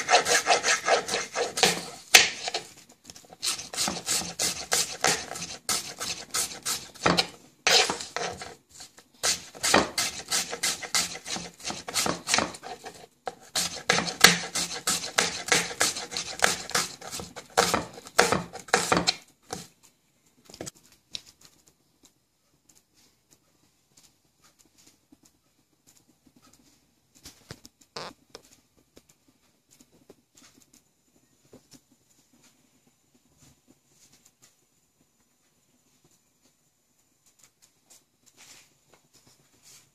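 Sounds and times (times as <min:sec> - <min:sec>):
knife chopping on wooden board: 0:00.0 - 0:02.7, 0:03.4 - 0:08.6, 0:09.2 - 0:19.6.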